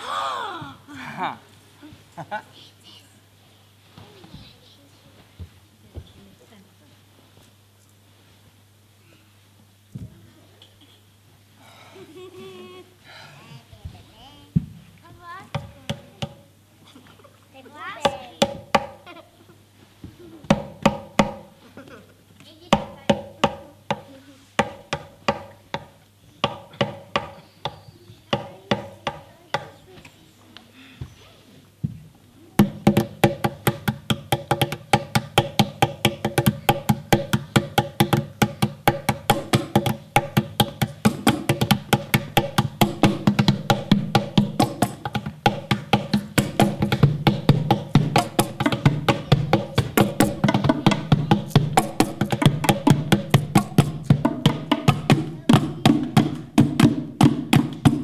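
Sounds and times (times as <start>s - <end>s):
hand drums: 18.0s - 19.1s, 20.1s - 21.6s, 22.7s - 29.7s, 32.6s - 58.0s.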